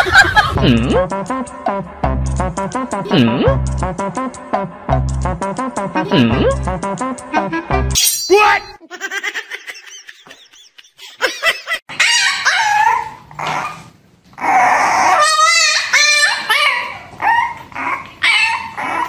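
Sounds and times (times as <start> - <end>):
puppy barking and whining: 11.9 - 19.0.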